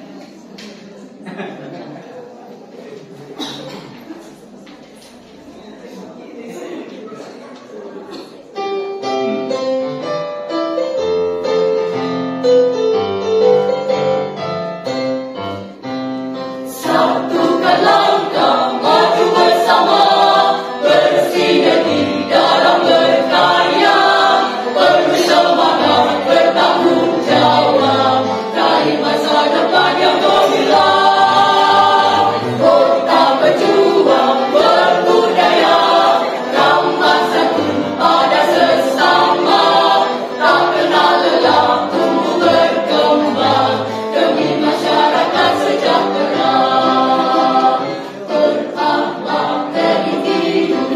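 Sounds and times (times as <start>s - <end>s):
mixed choir singing a march: 16.5s - 50.9s.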